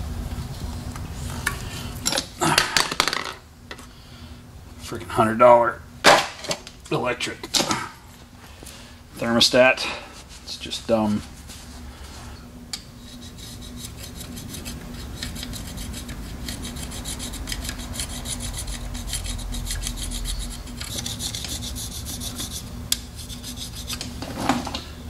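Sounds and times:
gasket scraper rasping on metal: 13.0 - 24.2.

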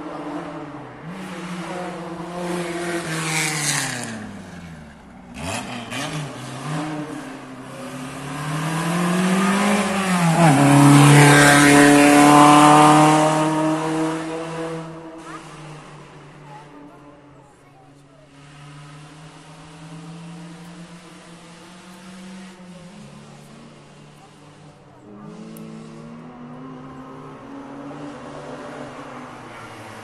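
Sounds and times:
race car engine revving: 0.0 - 30.0.

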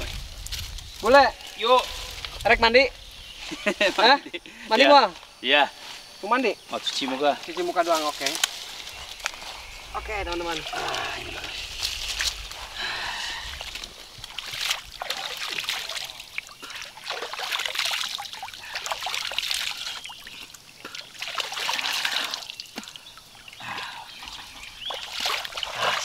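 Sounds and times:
water trickling: 7.0 - 26.0
water splashing on a face: 13.4 - 26.0.

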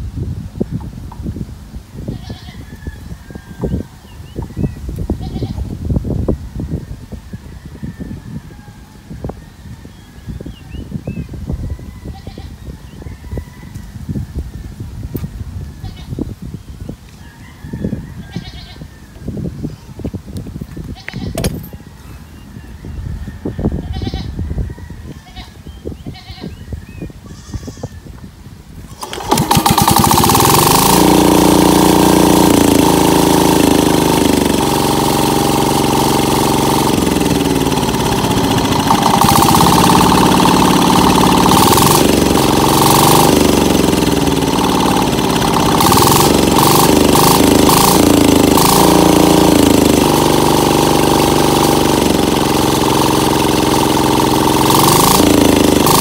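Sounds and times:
diesel engine running: 28.9 - 56.0.

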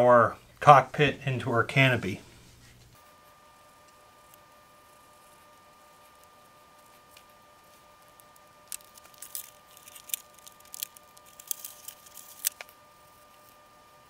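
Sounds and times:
thin plastic crackling: 6.9 - 13.6.

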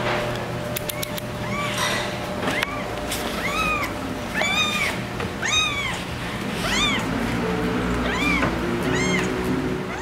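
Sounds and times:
cat meowing: 0.9 - 1.9, 2.5 - 7.1, 8.0 - 10.0.

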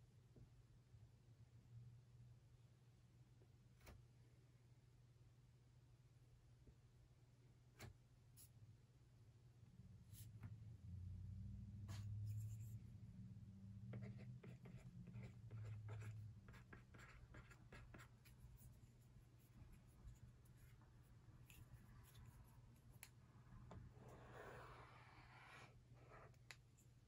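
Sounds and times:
stylus scratching on screen: 13.9 - 22.9, 23.7 - 26.5.

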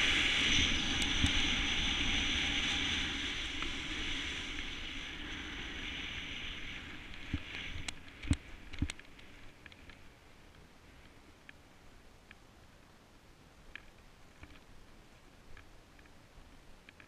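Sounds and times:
wind on microphone: 0.0 - 9.6
snowboard sliding over snow: 0.0 - 11.3.

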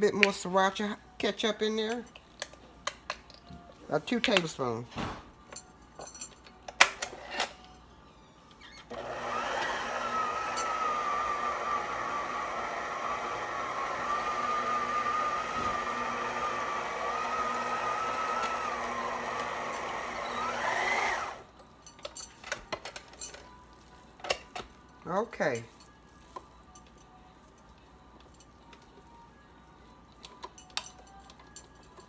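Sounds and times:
stand mixer motor whining: 8.9 - 21.5.

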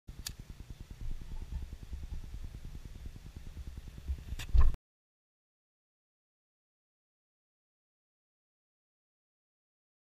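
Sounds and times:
lighter flame fluttering rumble: 0.1 - 4.8.

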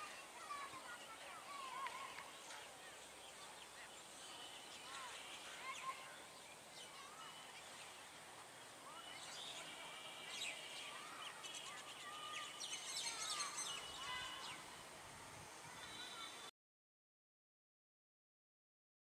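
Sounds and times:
birds chirping and calling: 8.9 - 14.8.

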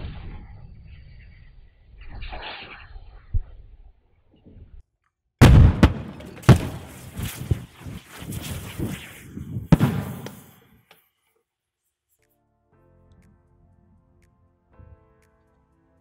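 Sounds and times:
aerosol cans exploding: 5.4 - 10.8.

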